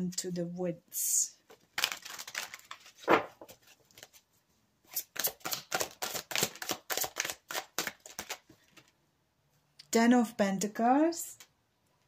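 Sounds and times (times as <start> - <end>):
cards being shuffled: 1.5 - 4.2, 4.9 - 8.9
papery card slaps: 1.7 - 3.5.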